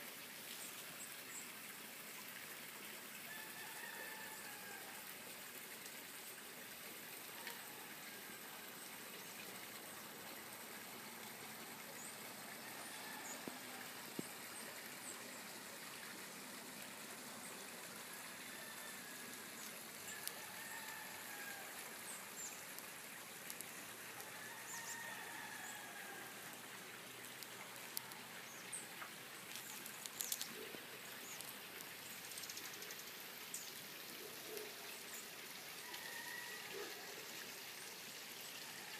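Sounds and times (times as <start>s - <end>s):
rooster crowing faintly: 3.3s - 5.1s, 18.1s - 21.8s, 24.1s - 26.6s, 35.8s - 37.2s
steady hiss: 4.2s - 36.0s
small birds chirping: 27.2s - 35.4s.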